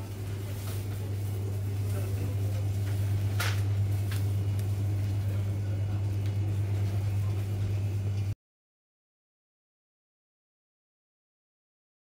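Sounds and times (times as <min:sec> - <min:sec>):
refrigerator electrical hum: 0:00.0 - 0:08.4.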